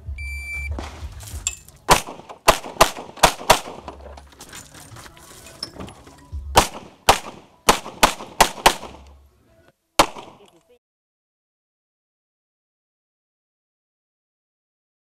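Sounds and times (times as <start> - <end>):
pistol firing rapid shots: 1.9 - 3.9, 6.6 - 9.0, 10.0 - 10.4.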